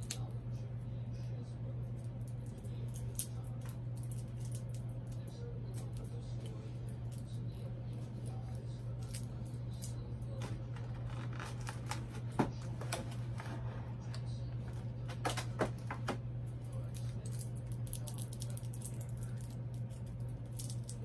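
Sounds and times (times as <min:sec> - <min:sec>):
steady low hum: 0:00.0 - 0:21.0
packaging clicks and rustles: 0:10.3 - 0:13.7.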